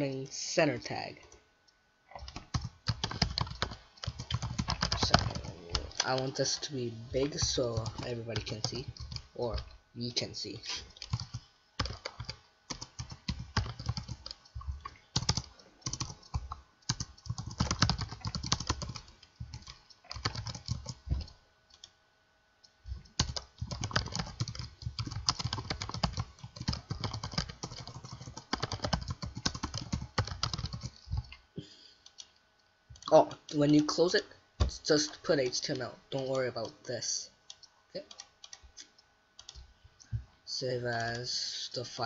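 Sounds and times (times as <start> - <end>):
typing on computer keyboard: 2.1 - 6.2, 7.3 - 9.7, 10.9 - 21.9, 22.9 - 31.4, 37.5 - 39.7.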